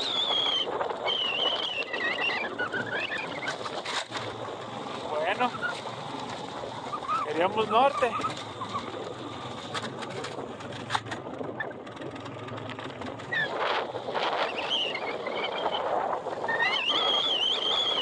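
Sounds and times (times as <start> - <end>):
high wavering whistle: 0.0 - 3.6, 14.4 - 18.0
strong gusting wind: 0.0 - 18.0.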